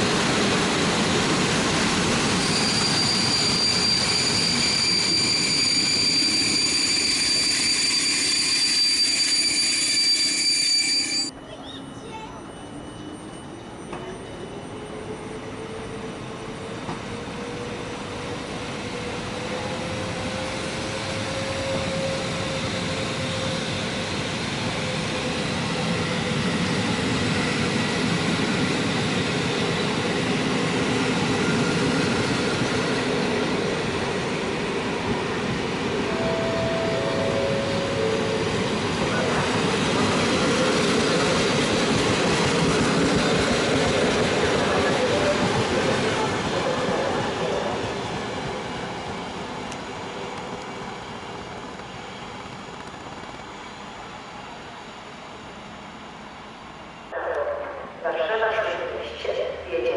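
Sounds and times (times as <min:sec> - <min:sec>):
train wheels on rails: 0:00.0 - 0:56.9
high wheel squeals: 0:02.2 - 0:16.1.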